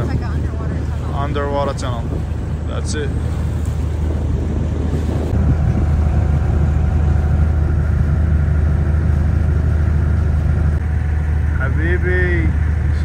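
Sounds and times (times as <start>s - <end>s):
boat engine humming: 0.0s - 13.0s.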